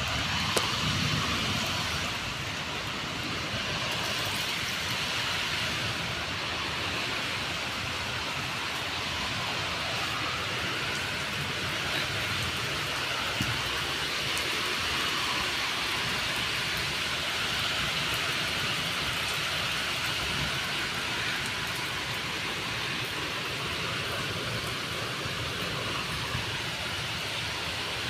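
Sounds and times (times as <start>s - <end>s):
steady rain falling: 0.0s - 28.0s.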